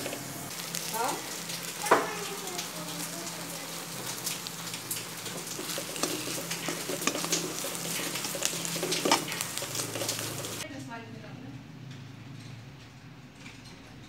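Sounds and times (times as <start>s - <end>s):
food sizzling in oil: 0.0s - 10.6s
metal spatula scraping pan: 4.2s - 10.6s.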